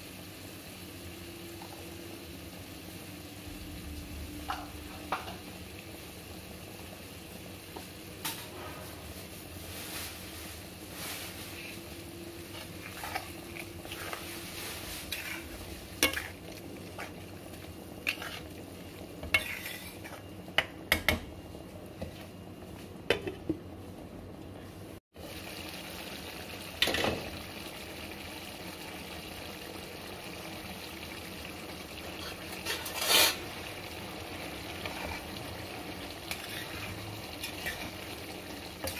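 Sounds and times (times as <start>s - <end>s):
curry sizzling: 0.0s - 23.3s, 25.1s - 38.9s
spoon scraping a frying pan: 12.5s - 17.2s, 18.0s - 18.6s, 19.2s - 20.7s, 32.1s - 33.6s, 36.2s - 38.2s.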